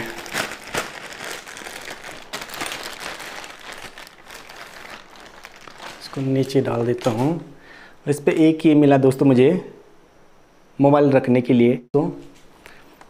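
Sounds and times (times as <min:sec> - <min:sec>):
plastic bag crinkling and rustling: 0:00.0 - 0:07.6.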